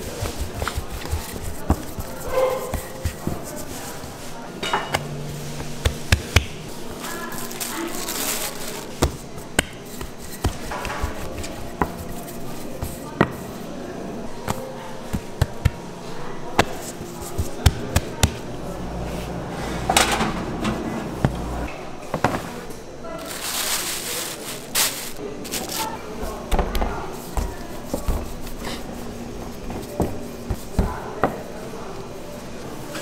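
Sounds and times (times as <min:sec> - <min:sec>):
machine hum: 0:05.0 - 0:09.5, 0:17.0 - 0:21.8.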